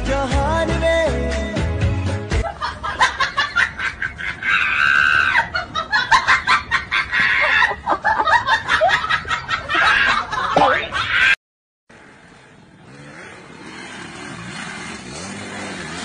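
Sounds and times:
young women shrieking and laughing: 2.4s - 11.4s.

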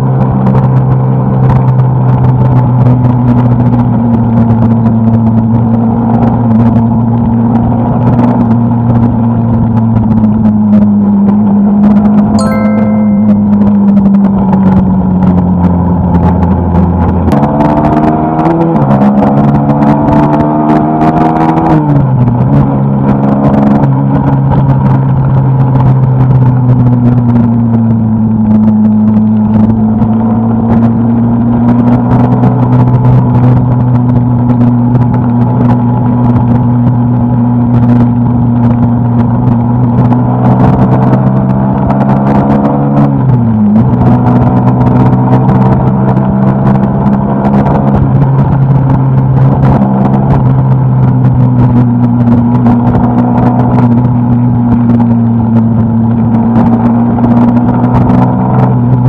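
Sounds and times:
motorcycle engine accelerating: 13.4s - 59.0s.

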